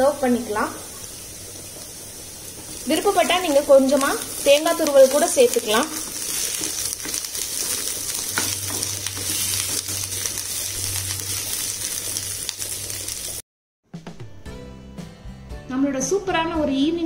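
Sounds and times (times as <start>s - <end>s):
food sizzling in oil: 0.0s - 13.4s
wooden spatula scraping pan: 4.4s - 11.3s.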